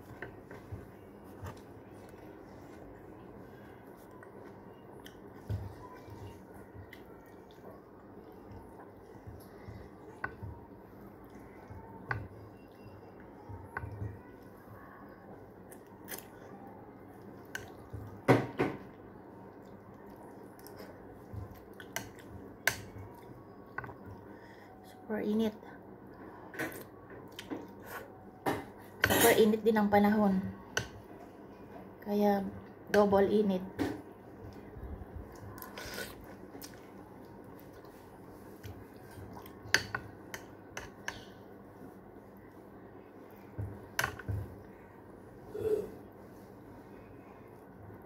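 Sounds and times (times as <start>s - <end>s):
person chewing noodles: 35.2s - 39.6s.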